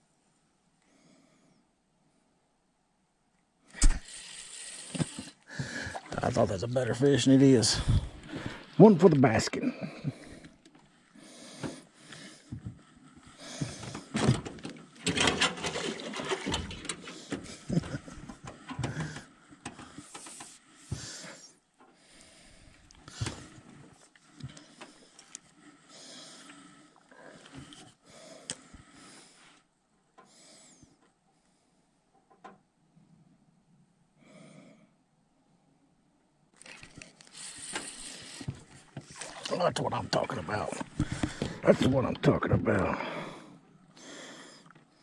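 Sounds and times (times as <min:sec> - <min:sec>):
handling knocks and rattles: 0:13.6 - 0:20.4.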